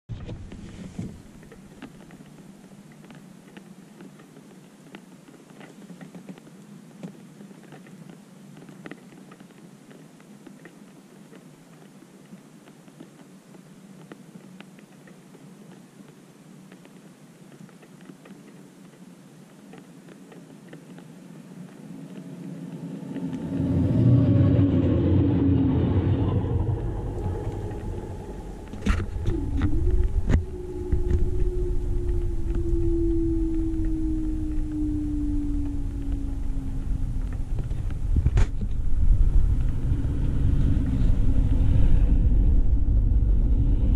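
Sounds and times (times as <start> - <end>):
faint steady hum: 0.1 - 43.9
train rumbling past: 22.0 - 34.2, 38.8 - 43.9.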